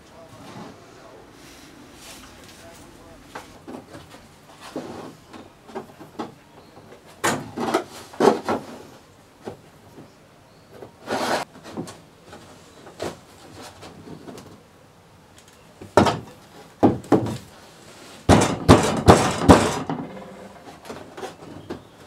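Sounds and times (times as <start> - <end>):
wood and metal clamps clattering: 3.4 - 9.6, 18.2 - 22.0.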